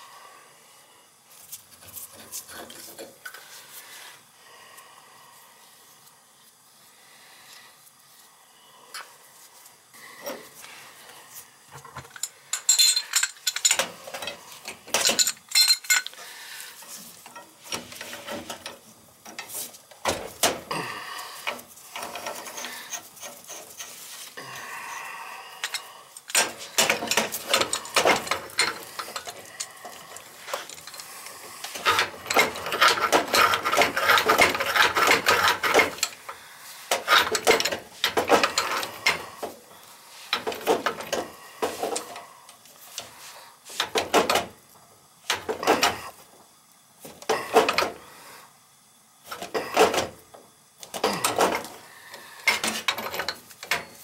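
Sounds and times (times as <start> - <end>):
metal tools clinking and scraping: 11.8 - 16.2, 21.4 - 24.4, 25.6 - 39.5, 52.4 - 54.0.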